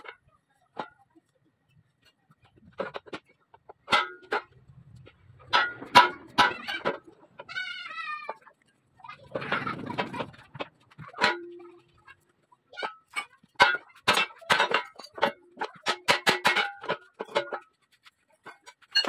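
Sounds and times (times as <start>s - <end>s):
sharp metallic knocks and clinks: 3.8s - 7.2s, 12.8s - 17.8s, 18.4s - 19.0s.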